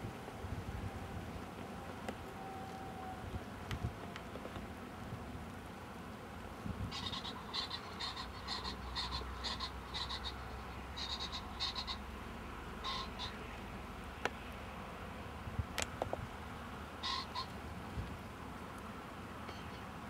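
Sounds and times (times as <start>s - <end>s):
animal giving short high calls: 6.9s - 12.0s, 12.8s - 13.4s, 17.0s - 17.5s.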